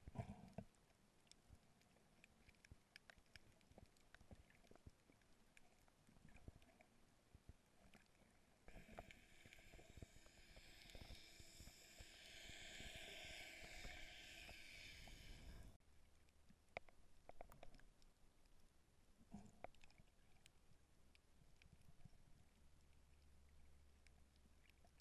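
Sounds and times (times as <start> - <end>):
underwater clicks and crackles: 0.0 - 25.0
underwater hiss: 8.7 - 15.8.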